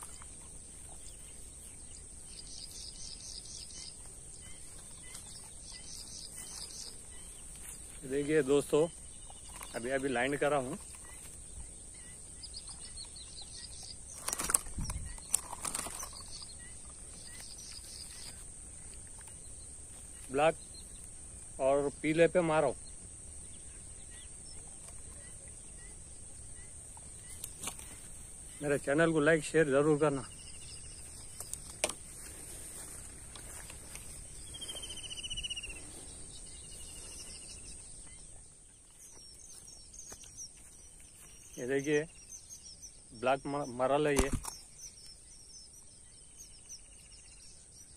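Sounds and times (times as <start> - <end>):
fish thrashing and flapping: 14.2 - 16.4.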